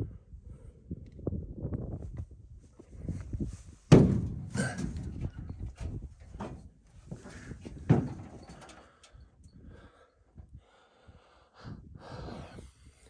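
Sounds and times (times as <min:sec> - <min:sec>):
loud thump: 0:03.9 - 0:04.9.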